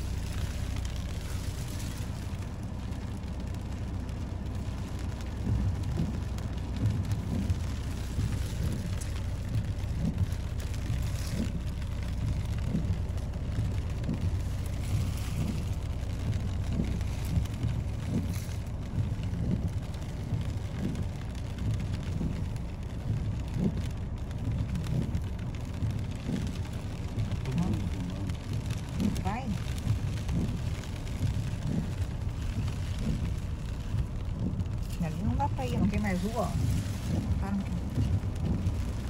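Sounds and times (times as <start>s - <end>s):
wind buffeting microphone: 0.0s - 39.0s
waves breaking against seawall: 27.3s - 39.0s.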